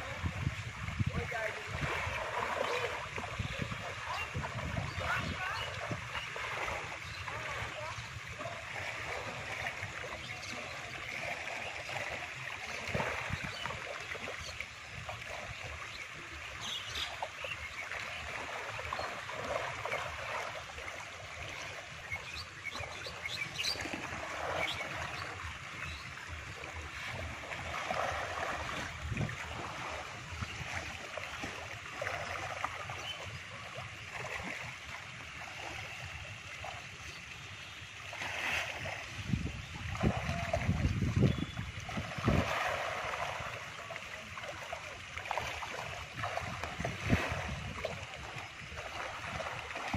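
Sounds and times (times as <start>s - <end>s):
wind buffeting microphone: 0.0s - 9.4s, 12.8s - 14.5s, 22.3s - 31.5s, 39.0s - 43.4s, 46.0s - 49.9s.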